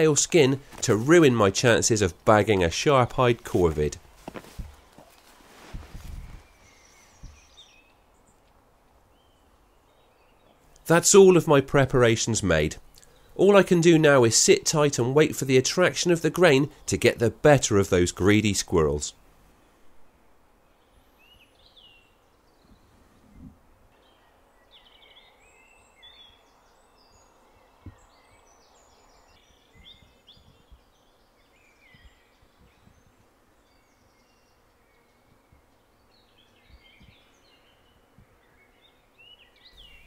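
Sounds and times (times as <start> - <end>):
birds chirping and trilling: 0.0 - 4.0, 6.1 - 8.4, 9.0 - 40.0
soft low thumps: 2.2 - 7.5.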